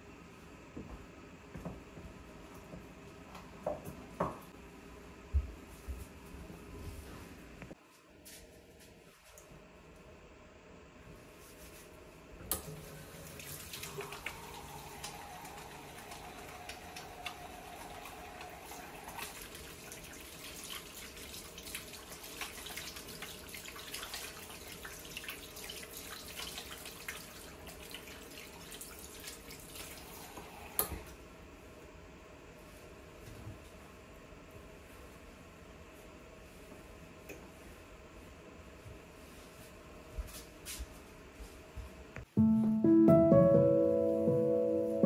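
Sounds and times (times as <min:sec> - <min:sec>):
tap water running into sink: 0:12.6 - 0:31.0
hands washing under water: 0:13.2 - 0:30.4.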